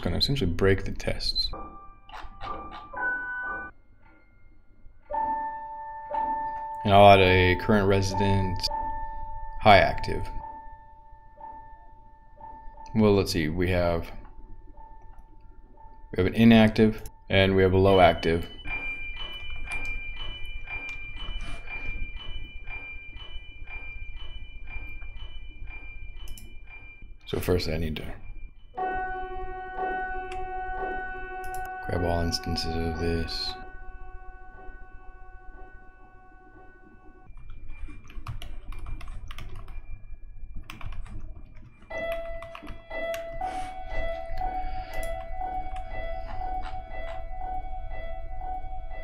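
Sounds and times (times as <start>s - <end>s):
typing on keyboard: 37.3s - 39.8s, 40.5s - 47.3s.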